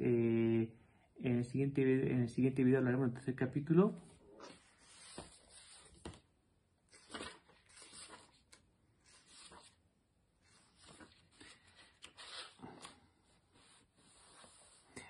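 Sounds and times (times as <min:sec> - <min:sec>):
faint rustling and scrapes: 0:03.9 - 0:06.2, 0:10.4 - 0:15.0.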